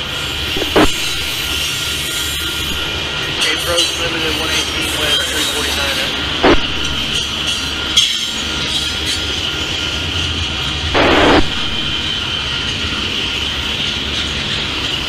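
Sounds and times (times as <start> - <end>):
loud rush of noise: 0.0 - 3.4, 5.6 - 7.9, 9.4 - 15.0
train wheels rumbling on rail: 0.0 - 15.0.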